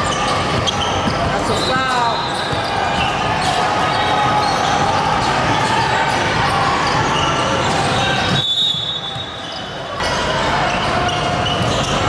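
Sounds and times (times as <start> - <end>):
basketball bouncing on court: 0.0 - 7.1.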